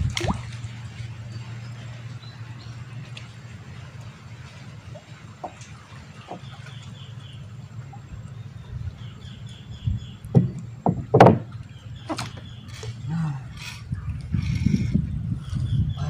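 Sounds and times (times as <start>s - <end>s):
steady low rumble: 0.0s - 16.0s
knocks on wooden boat: 10.3s - 12.4s.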